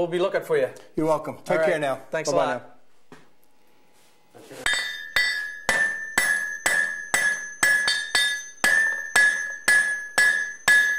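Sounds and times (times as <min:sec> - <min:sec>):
hammer striking anvil: 0:04.6 - 0:10.9.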